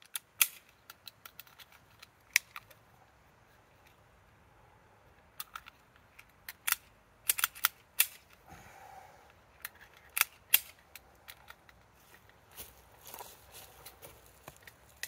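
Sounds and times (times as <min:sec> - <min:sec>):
metallic clicks of pistol handling: 0:00.0 - 0:02.8, 0:05.1 - 0:08.4, 0:09.3 - 0:12.4.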